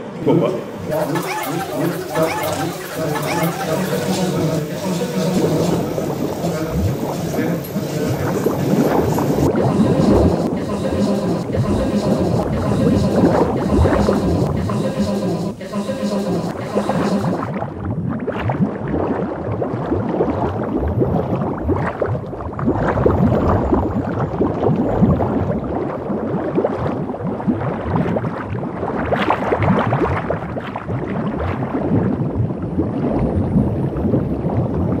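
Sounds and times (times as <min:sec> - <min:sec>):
water splashing and sloshing: 0:17.4 - 0:35.0.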